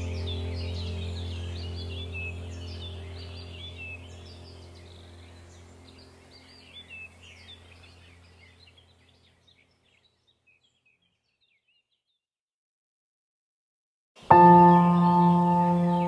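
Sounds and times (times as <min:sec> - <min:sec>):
steady low hum: 0:00.0 - 0:09.7
songbirds chirping and twittering: 0:00.0 - 0:12.2, 0:14.2 - 0:16.0.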